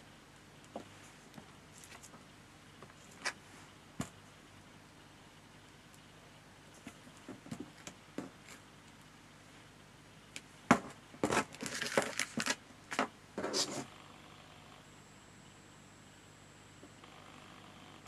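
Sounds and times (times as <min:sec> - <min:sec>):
crinkly paper rustling: 0:11.2 - 0:13.8.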